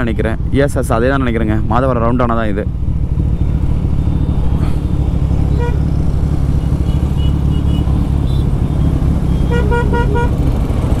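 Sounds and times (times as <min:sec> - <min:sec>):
motorcycle engine: 0:00.5 - 0:11.0
vehicle horn toots: 0:05.5 - 0:05.9, 0:09.3 - 0:10.4.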